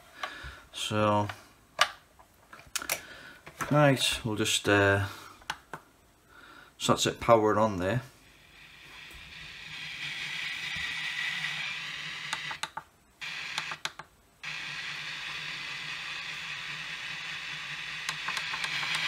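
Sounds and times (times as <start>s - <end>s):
radio static hiss: 6.8s - 19.0s.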